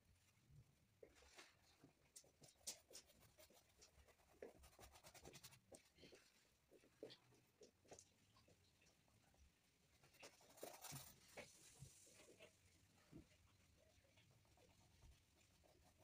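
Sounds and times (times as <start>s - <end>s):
paintbrush strokes on board: 2.4s - 6.2s, 9.9s - 12.6s.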